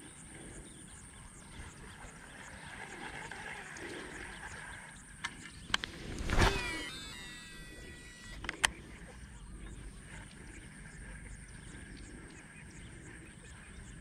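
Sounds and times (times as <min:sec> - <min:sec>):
reel spool whirring: 0:01.2 - 0:13.1
sharp clicks: 0:05.2 - 0:08.8
fishing rod swish: 0:05.8 - 0:07.0.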